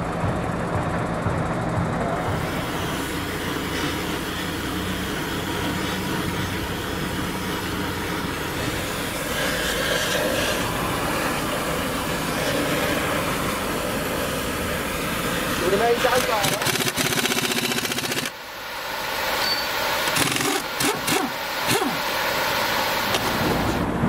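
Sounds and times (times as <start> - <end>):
engine idling: 0.0 - 23.9
torch flame hissing: 2.3 - 24.0.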